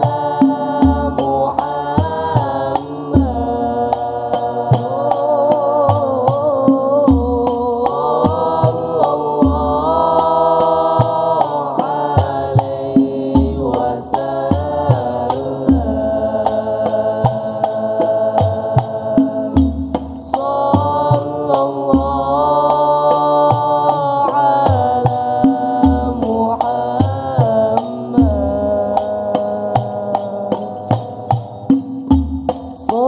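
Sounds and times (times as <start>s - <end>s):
frame drums beating: 0.0s - 33.0s
men chanting in unison: 0.0s - 33.0s
young men singing together: 0.0s - 33.0s
bass drum thumps: 30.9s - 33.0s.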